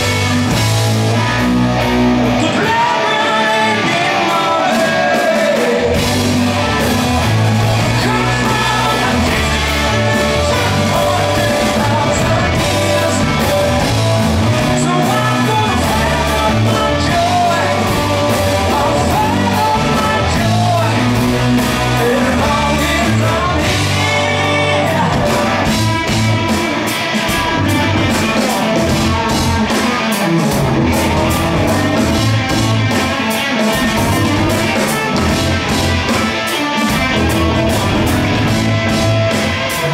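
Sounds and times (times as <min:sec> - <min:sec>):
bass guitar: 0:00.0 - 0:39.9
drum kit: 0:00.0 - 0:39.9
electric guitar: 0:00.0 - 0:39.9
man singing: 0:02.4 - 0:06.1, 0:07.8 - 0:29.9.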